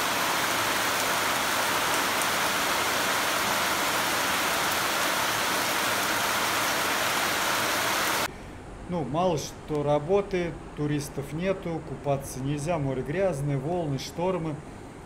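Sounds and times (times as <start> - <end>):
heavy rain pouring: 0.0 - 8.3.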